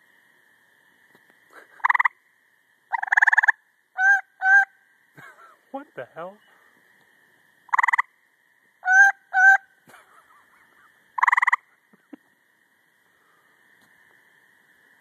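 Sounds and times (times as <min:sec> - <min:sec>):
faint high drone: 0:00.0 - 0:15.0
treefrog pulsed trill: 0:01.6 - 0:05.6, 0:07.6 - 0:13.4.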